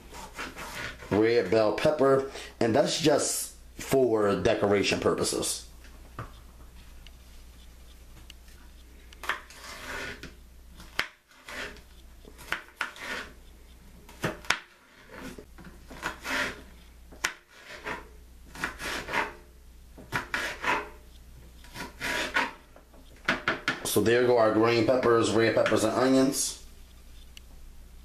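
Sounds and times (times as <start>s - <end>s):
knife scraping board: 0.0s - 1.6s, 9.2s - 13.4s, 14.1s - 21.0s, 21.6s - 22.7s
knife chopping on cutting board: 12.4s - 13.3s, 15.9s - 16.6s, 17.2s - 19.4s, 20.0s - 21.0s.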